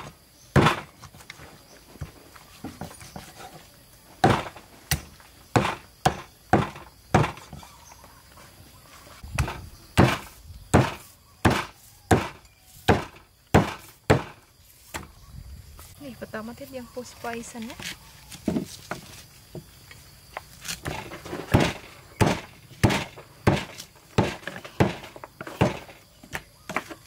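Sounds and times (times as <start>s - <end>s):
cleaver chopping on wooden block: 0.0s - 1.0s, 4.2s - 7.6s, 9.3s - 15.1s, 20.6s - 27.0s.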